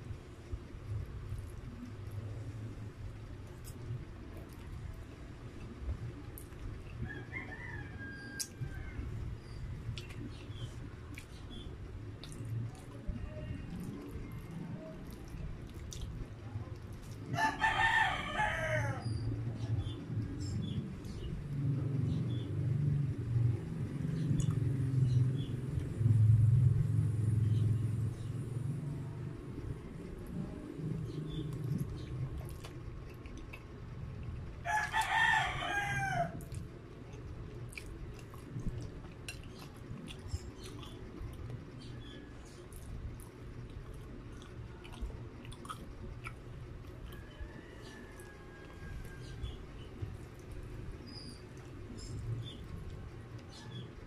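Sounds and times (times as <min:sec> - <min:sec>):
low hum: 0:00.0 - 0:54.0
clicking sounds of eating: 0:00.4 - 0:07.1, 0:08.2 - 0:17.4, 0:19.0 - 0:26.5, 0:29.4 - 0:35.2, 0:36.2 - 0:54.0
rooster crowing: 0:07.0 - 0:09.2, 0:17.3 - 0:19.3, 0:34.6 - 0:36.4, 0:47.1 - 0:49.6
man chewing food: 0:07.9 - 0:13.1, 0:13.7 - 0:17.6, 0:19.3 - 0:26.5, 0:29.2 - 0:35.1, 0:35.7 - 0:53.9.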